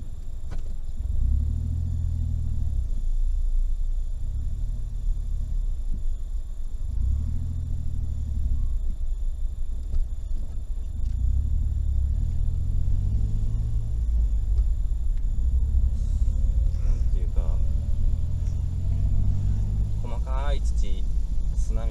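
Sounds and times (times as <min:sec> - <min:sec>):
car engine hum: 0:00.0 - 0:21.9
road rumble: 0:00.0 - 0:21.9.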